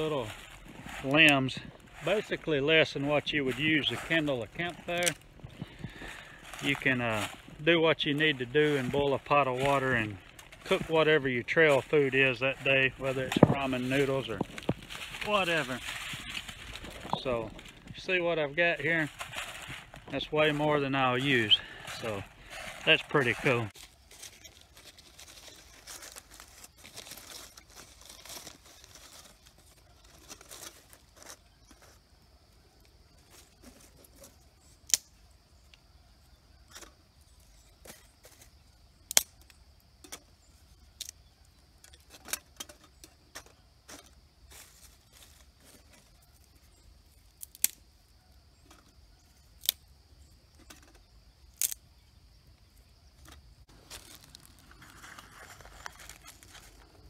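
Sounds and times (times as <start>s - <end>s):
dry leaves crinkling: 0.0s - 35.1s, 40.7s - 49.8s, 52.6s - 57.0s
dry twigs snapping: 4.9s - 7.6s, 13.3s - 18.0s, 34.8s - 35.8s, 39.0s - 40.2s, 47.3s - 47.9s, 49.5s - 49.9s, 50.8s - 51.8s.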